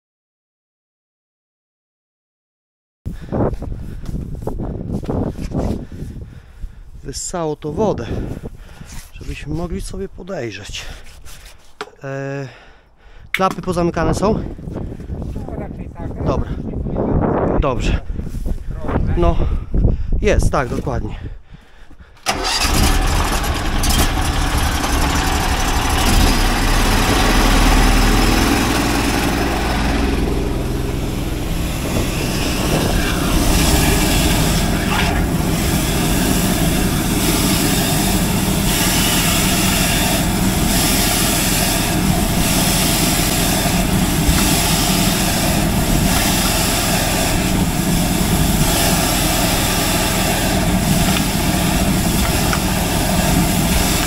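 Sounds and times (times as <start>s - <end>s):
engine running steadily: 22.2s - 54.0s.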